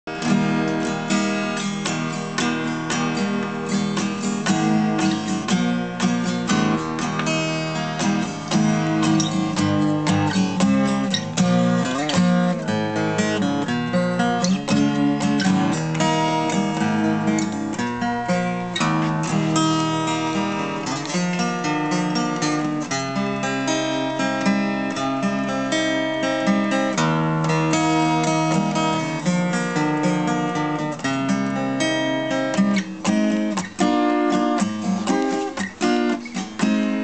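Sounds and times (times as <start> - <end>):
fingerpicked acoustic guitar: 0.0 - 37.0.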